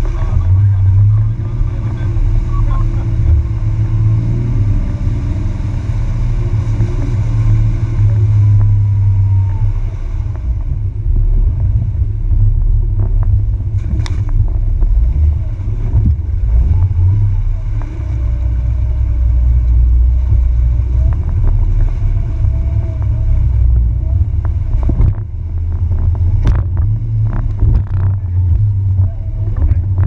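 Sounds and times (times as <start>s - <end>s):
engine and drivetrain rumble: 0.0s - 30.0s
suspension knocks: 10.2s - 30.0s.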